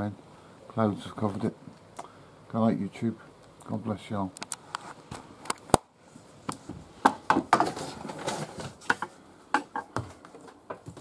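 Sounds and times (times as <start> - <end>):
rustling: 4.4 - 9.2.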